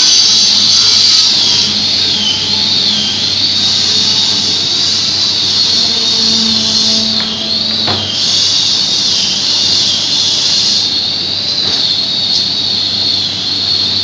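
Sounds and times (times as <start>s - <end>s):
panel saw whining: 0.0s - 14.0s
low hum: 0.5s - 9.5s.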